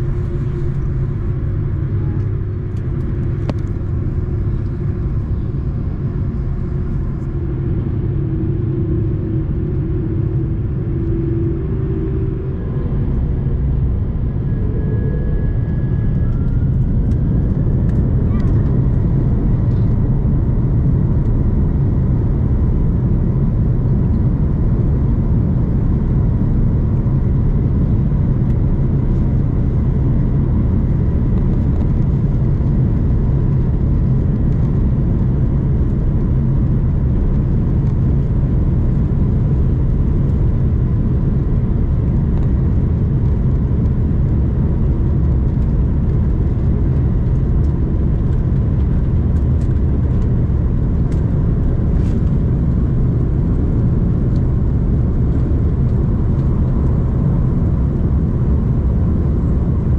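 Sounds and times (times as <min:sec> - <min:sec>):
faint even whine: 0:00.0 - 0:33.2
jet engines rumbling: 0:00.0 - 0:59.9.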